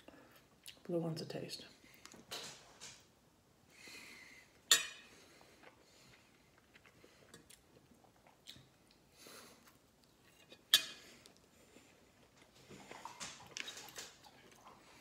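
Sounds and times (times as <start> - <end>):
quiet chewing: 5.2 - 15.0.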